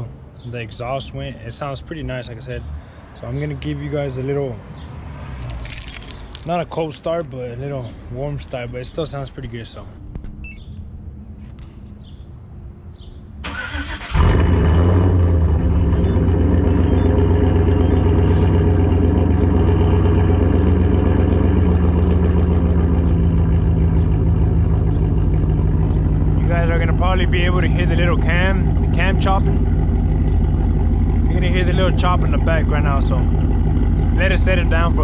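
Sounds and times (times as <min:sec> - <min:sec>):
engine lopey idle: 0:13.5 - 0:35.0.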